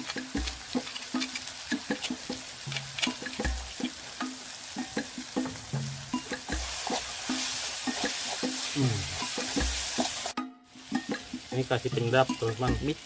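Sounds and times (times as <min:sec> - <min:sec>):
metal spoon scraping a wok: 0:00.0 - 0:04.2, 0:06.3 - 0:10.3
paste sizzling in hot oil: 0:00.0 - 0:13.0.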